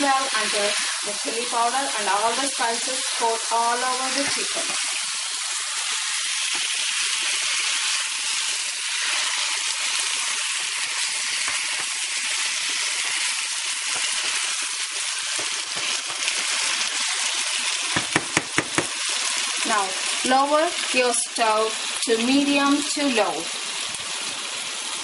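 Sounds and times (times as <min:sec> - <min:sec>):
chicken sizzling in oil: 0:00.0 - 0:25.0
sharp knocks: 0:18.0 - 0:18.9.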